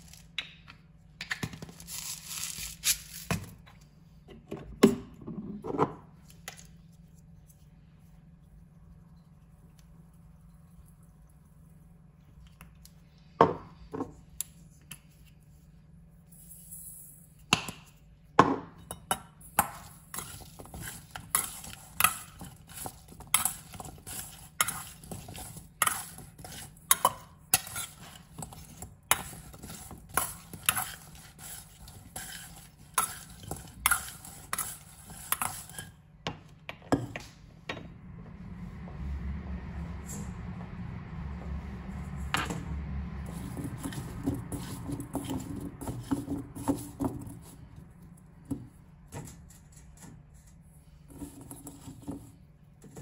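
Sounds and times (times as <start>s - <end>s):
metal spoon scraping steel bowl: 19.8s - 36.0s, 43.3s - 47.6s.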